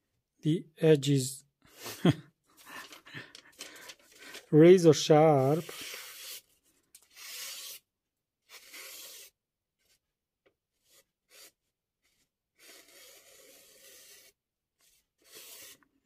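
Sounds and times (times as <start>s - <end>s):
knife slicing paper: 5.5s - 7.8s, 8.5s - 9.4s, 15.2s - 15.8s.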